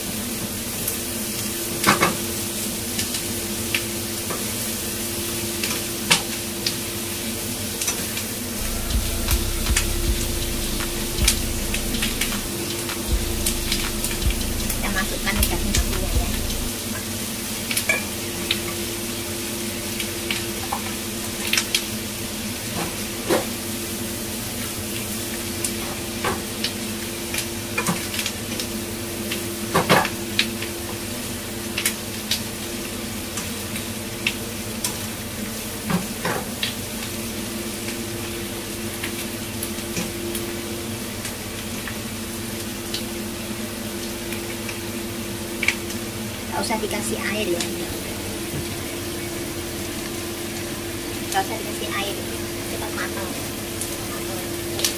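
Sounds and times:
meat sizzling in a wok: 0.0s - 15.4s, 16.7s - 54.9s
low hum: 8.6s - 16.8s.

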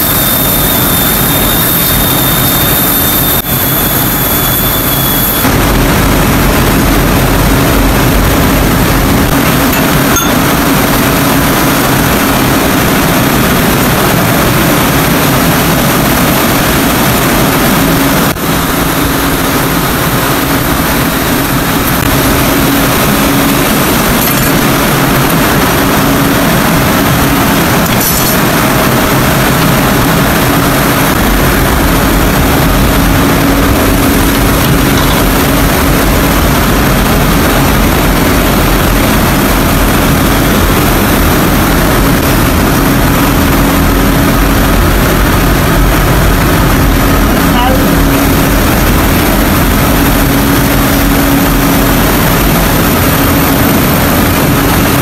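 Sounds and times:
factory machinery din: 0.0s - 55.0s
steady low hum: 0.0s - 55.0s.

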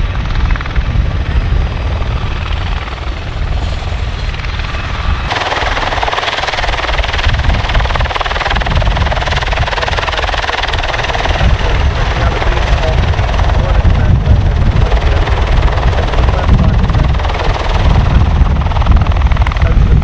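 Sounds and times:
aircraft rotor and turbine rumble: 0.0s - 20.0s.

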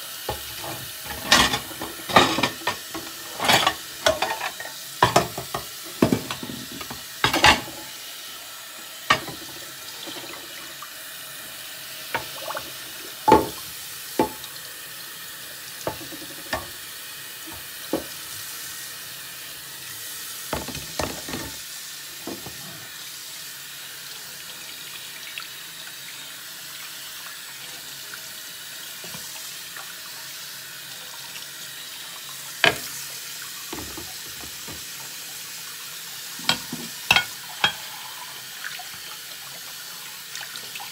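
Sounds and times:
faucet running into a sink: 0.1s - 40.9s
dishes knocking against a sink: 0.3s - 7.8s, 9.1s - 9.5s, 13.3s - 13.6s, 15.9s - 16.7s, 20.5s - 21.6s, 33.7s - 34.9s, 36.4s - 37.8s.

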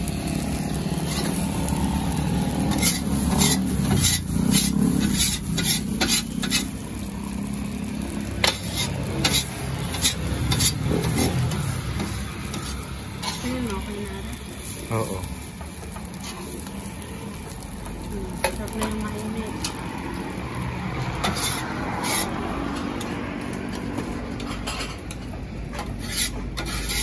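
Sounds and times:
rice sizzling: 0.0s - 27.0s
metal spatulas scraping griddle: 0.5s - 1.6s, 2.4s - 6.9s, 8.0s - 13.9s, 14.6s - 16.8s, 18.3s - 19.9s, 21.0s - 27.0s.

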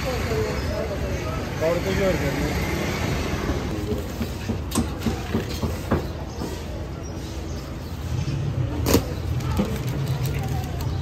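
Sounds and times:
sharp paper crackles: 8.8s - 11.0s
newspaper crinkling: 9.2s - 11.0s.

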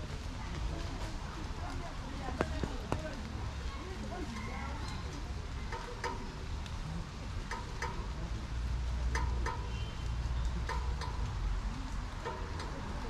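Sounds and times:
light rain pattering: 0.0s - 13.0s
sharp taps: 2.3s - 3.2s.

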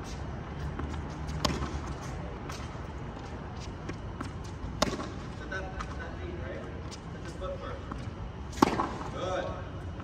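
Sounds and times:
steady low hum: 0.0s - 10.0s
ball bouncing on hard court: 0.7s - 1.8s, 3.9s - 5.2s
tennis ball struck by rackets: 0.8s - 2.0s, 3.9s - 5.3s, 8.5s - 9.2s.

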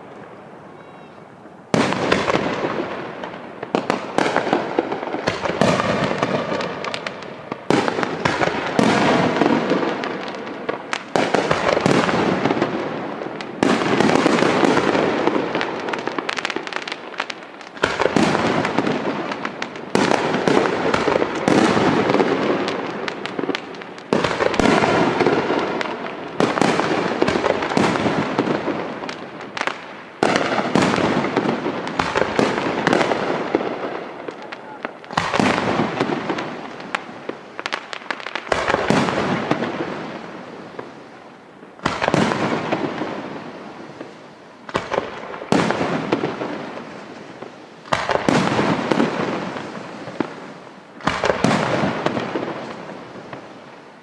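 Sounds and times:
firework crackling: 0.0s - 54.0s.

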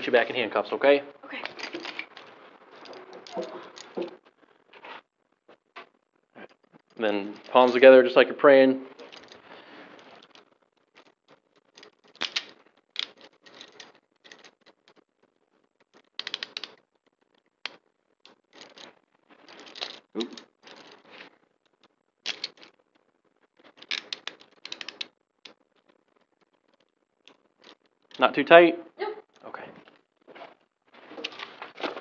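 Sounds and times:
clothing rustling: 8.8s - 28.1s, 29.3s - 32.0s
handcuffs ratcheting clicks: 16.0s - 16.8s, 23.8s - 25.1s.

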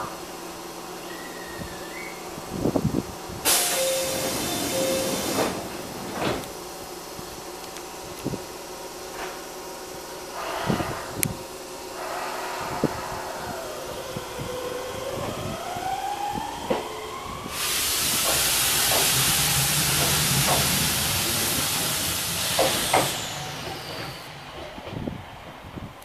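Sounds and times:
loud steady hiss: 0.0s - 14.9s, 17.4s - 26.0s
electric train motor whine: 0.0s - 26.0s
wheels clicking over rail joints: 18.0s - 26.0s.

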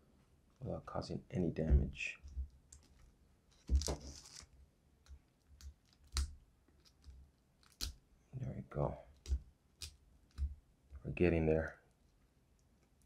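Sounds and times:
plastic wrap crinkling: 2.8s - 4.6s.

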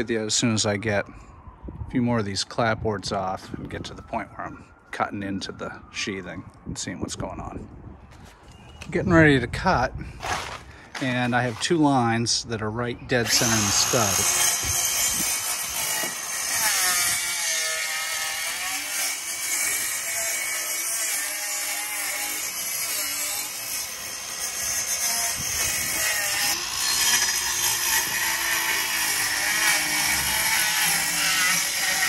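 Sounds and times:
power saw cutting wood: 13.2s - 32.0s.

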